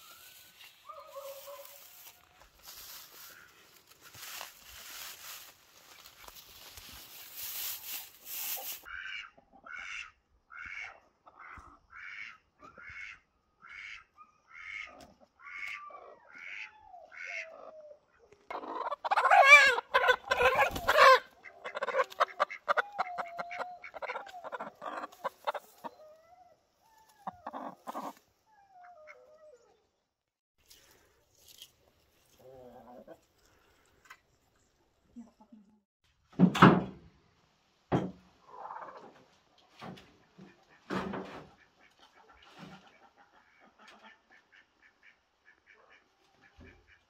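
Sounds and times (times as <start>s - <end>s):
straw rustling: 0.0s - 8.9s, 30.6s - 34.0s
chicken clucking: 18.4s - 26.1s, 27.0s - 28.2s, 32.4s - 33.3s, 41.5s - 44.8s
chicken squawking: 18.5s - 26.2s, 27.2s - 28.2s.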